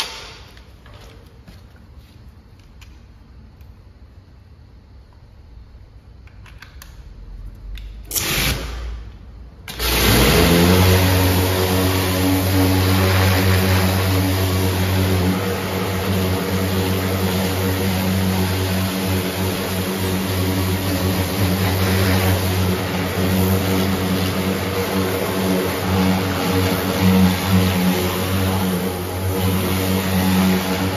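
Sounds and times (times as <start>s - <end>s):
pressure washer humming: 9.7s - 30.9s
water jet hissing on tyre: 9.7s - 30.9s.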